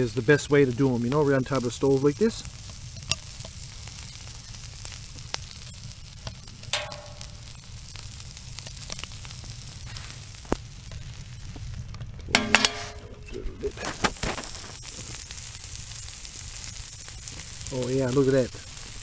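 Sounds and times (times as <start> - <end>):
fish sizzling and crackling: 0.0 - 19.0.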